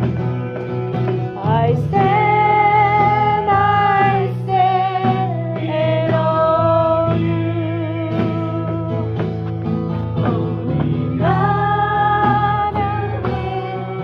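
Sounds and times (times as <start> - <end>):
instrumental accompaniment: 0.0 - 14.0
woman singing into a microphone: 1.4 - 9.2, 10.8 - 14.0.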